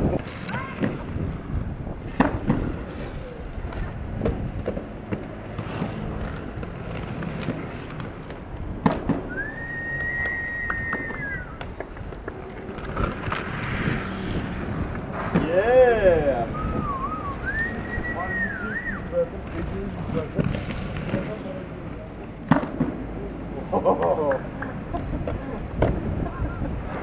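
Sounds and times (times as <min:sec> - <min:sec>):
skateboard wheels rolling: 0:00.0 - 0:27.0
skateboard clacking on ground: 0:02.0 - 0:15.8, 0:23.8 - 0:27.0
high steady whistling tone: 0:09.3 - 0:11.7, 0:16.4 - 0:19.2.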